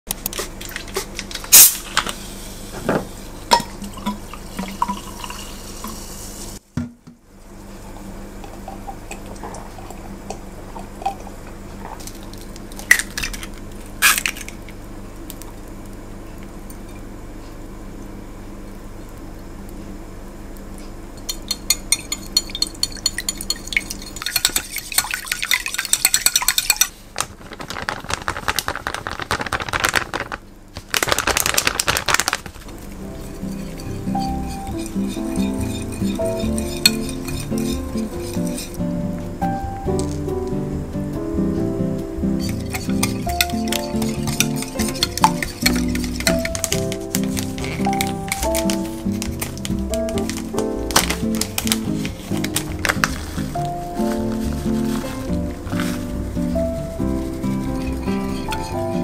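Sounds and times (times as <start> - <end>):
steady low hum: 0.1 - 25.0, 32.5 - 59.0
liquid pouring: 3.6 - 6.2
glassware clinking: 21.2 - 24.7
utensil beating batter in glass bowl: 21.3 - 29.8, 32.9 - 38.8, 42.4 - 53.6, 57.0 - 59.0.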